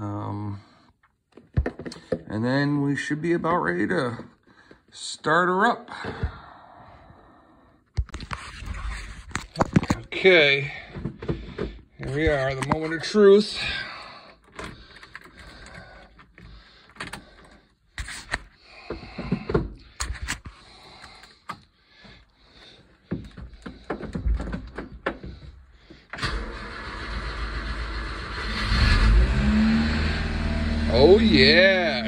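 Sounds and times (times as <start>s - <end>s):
starter cranking: 26.1s - 29.2s
car engine running: 26.3s - 32.0s.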